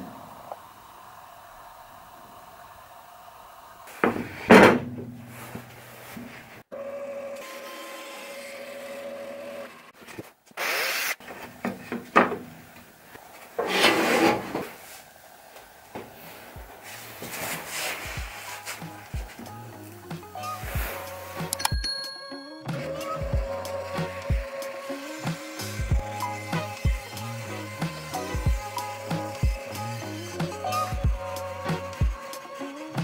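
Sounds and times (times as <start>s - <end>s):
wood scraping and sliding on table: 13.6s - 15.0s.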